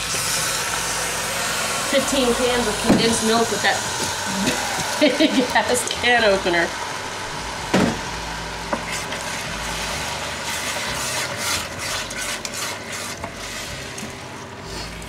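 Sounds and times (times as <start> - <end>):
wooden spoon scraping pot: 8.7 - 15.0.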